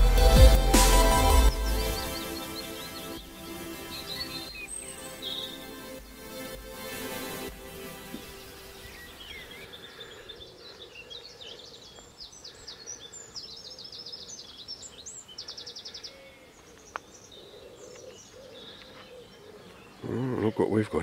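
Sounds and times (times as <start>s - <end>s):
songbirds chirping and whistling: 0.4s - 21.0s
faint outdoor hiss: 1.0s - 21.0s
bird trill: 1.2s - 5.8s.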